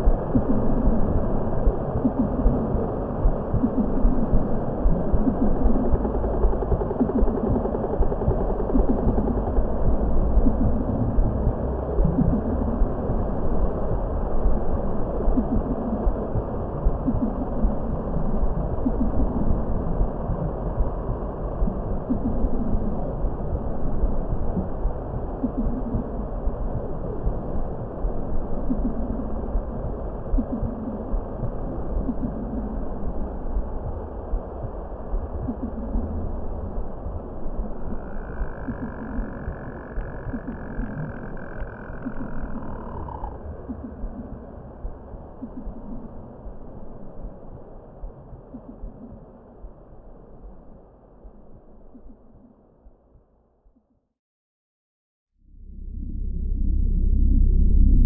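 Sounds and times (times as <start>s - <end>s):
deep rumbling ambient drone: 0.0s - 54.1s, 55.3s - 58.0s
faint wavering tones: 55.4s - 58.0s.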